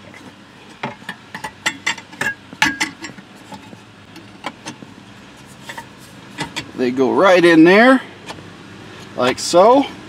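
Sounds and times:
metal brace clinking and knocking: 0.1 - 4.9, 5.6 - 6.8.

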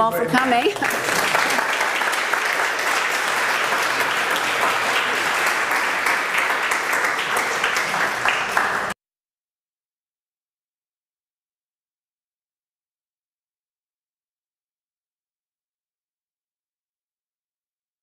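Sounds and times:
audience applauding: 0.3 - 9.0.

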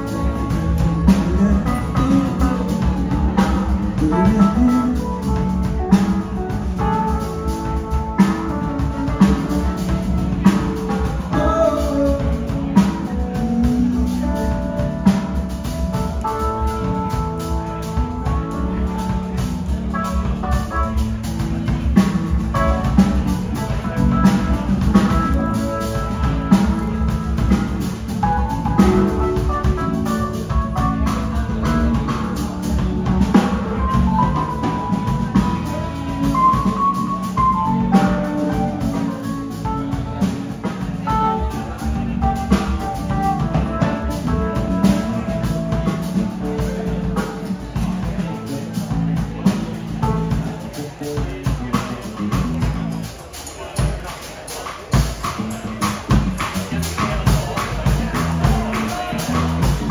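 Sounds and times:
live band playing: 0.0 - 59.9.

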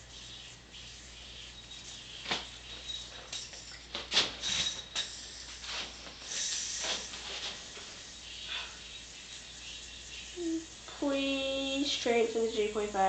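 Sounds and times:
spinning yo-yo whine: 0.0 - 13.0.

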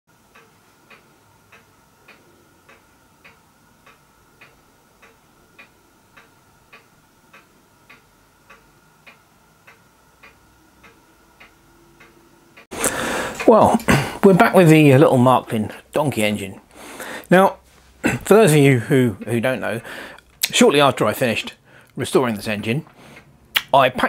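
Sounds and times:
faint even ticking: 0.2 - 17.4.

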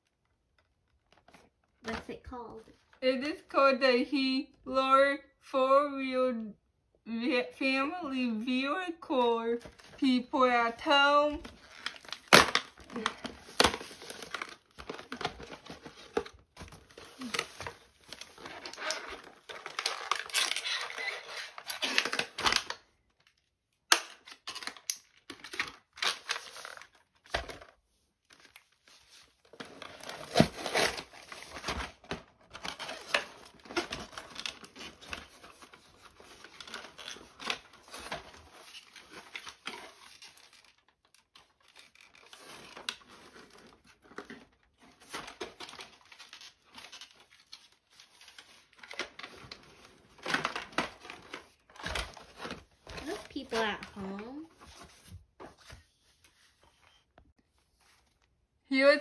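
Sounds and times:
cardboard tearing and rustling: 11.4 - 22.8, 28.4 - 56.1
plastic bags crinkling: 11.4 - 22.9.

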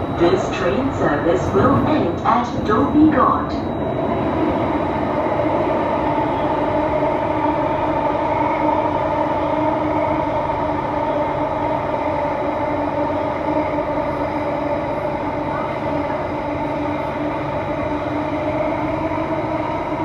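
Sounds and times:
train wheels rumbling on track: 0.0 - 20.0.

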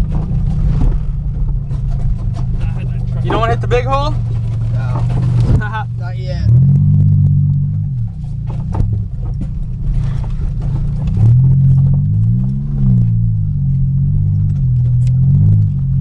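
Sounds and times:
car engine from inside cabin: 0.0 - 16.0
car bouncing knocks: 7.7 - 12.2.

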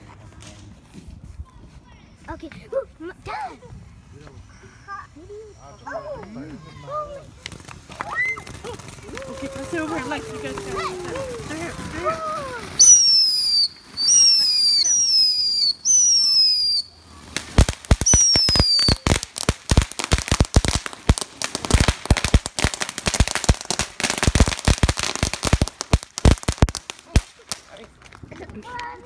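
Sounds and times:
firework crackling pops: 6.2 - 29.0
firework whistling: 6.9 - 27.7.

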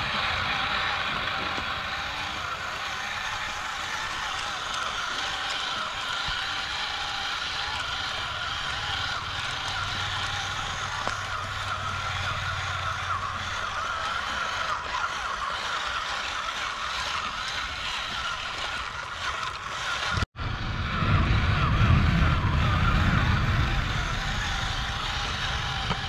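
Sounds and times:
small electric motors whirring: 0.0 - 26.0
low rumble: 20.4 - 26.0.

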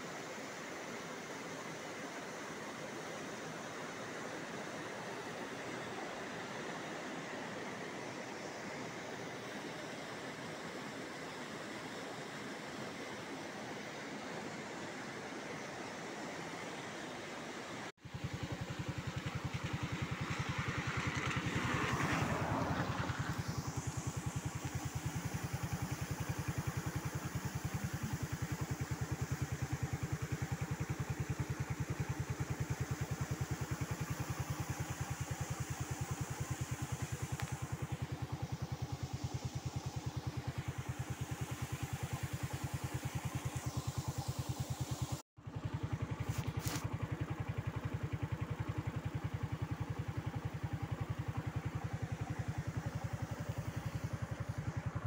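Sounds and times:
motorcycle engine running: 18.0 - 55.0.

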